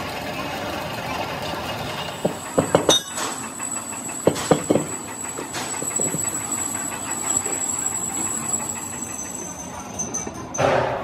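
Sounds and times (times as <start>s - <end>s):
workshop machine noise: 0.0s - 11.0s
metal piston clanking: 2.2s - 10.7s.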